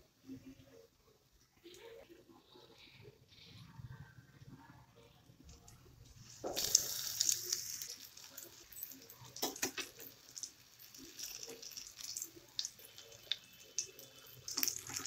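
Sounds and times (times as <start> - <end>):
food deep-frying in hot oil: 5.4 - 15.0.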